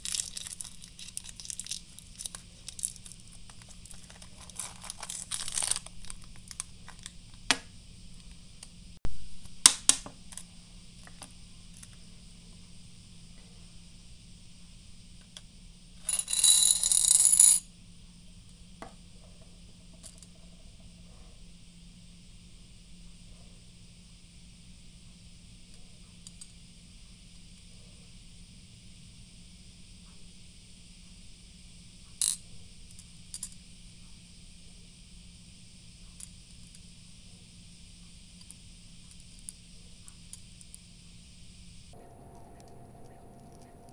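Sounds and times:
candies clattering on ceramic dish: 0.0 - 7.1
faint steady hiss: 0.0 - 43.9.

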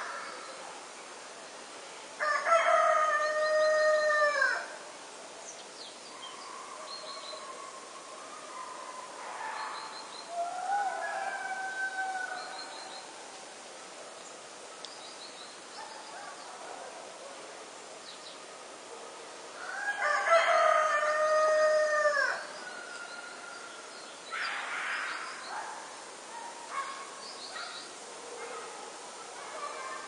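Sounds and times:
rooster crowing: 10.4 - 12.5, 19.6 - 23.0
small birds chirping: 22.4 - 28.0.

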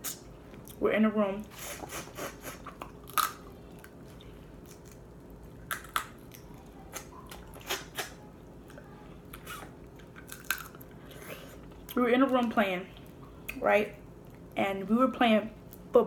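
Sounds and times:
crab shells cracking: 2.9 - 4.0, 4.6 - 6.5, 10.0 - 10.9
chewing: 5.7 - 12.0.

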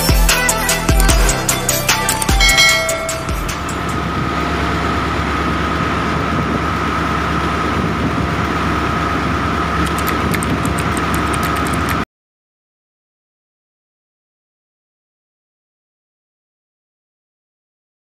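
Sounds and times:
boat engine running: 0.0 - 12.0
thin steady whine: 1.1 - 7.7
wind and sea noise: 3.7 - 12.0.

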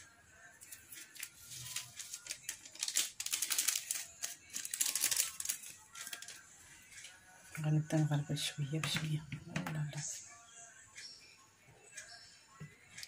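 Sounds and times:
paper sachet crinkling: 0.7 - 6.4
sachet tapping and flicking: 0.9 - 6.4.

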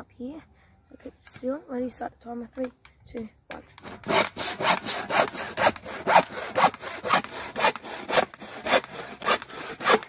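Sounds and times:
handsaw cutting wood: 3.8 - 10.0.

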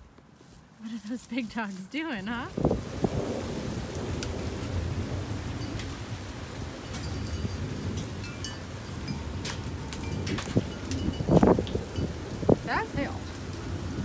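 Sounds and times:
rain falling on driveway: 1.6 - 14.0
sharp drips: 6.8 - 13.7.

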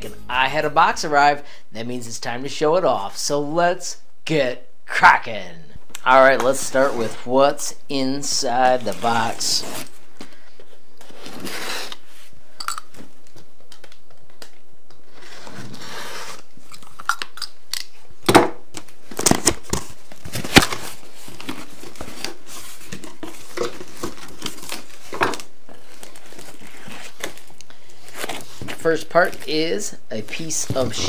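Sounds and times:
packing tape tearing: 18.8 - 28.8.

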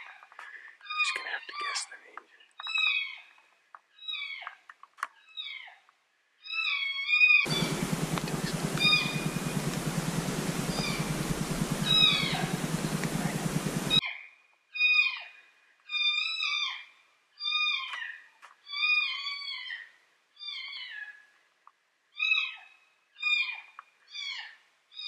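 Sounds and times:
heavy rushing noise: 7.5 - 14.0
low hum: 7.5 - 14.0.

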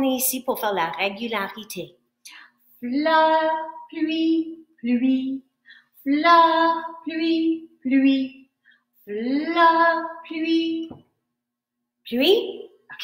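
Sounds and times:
woman singing: 2.8 - 8.5, 9.1 - 11.1.

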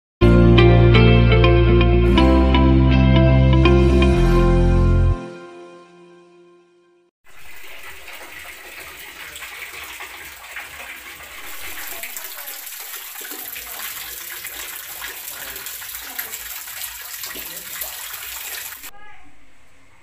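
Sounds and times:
water trickling into pool: 7.3 - 18.9.

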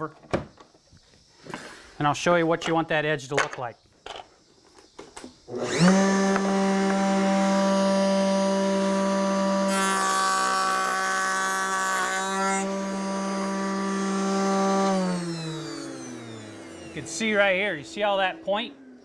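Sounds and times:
router bit cutting wood: 5.5 - 19.0
router motor humming: 5.5 - 19.0.

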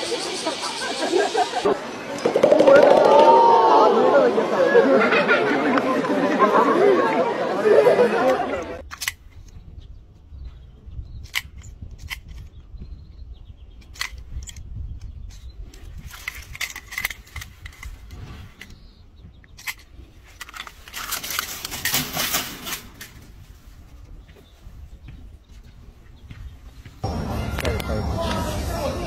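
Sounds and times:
plastic toy clicking and rattling: 16.0 - 18.0.

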